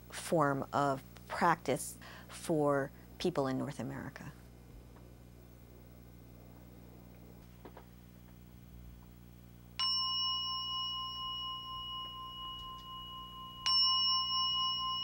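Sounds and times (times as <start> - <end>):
singing bowl ringing: 9.7 - 15.0.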